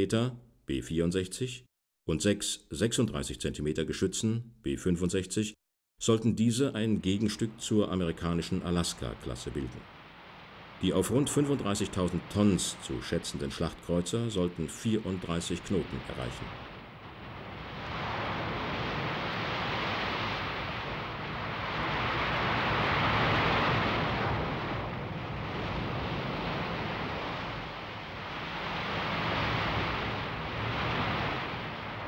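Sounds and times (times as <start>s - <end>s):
wind: 6.5s - 32.0s
waves breaking over ship bow: 8.1s - 32.0s.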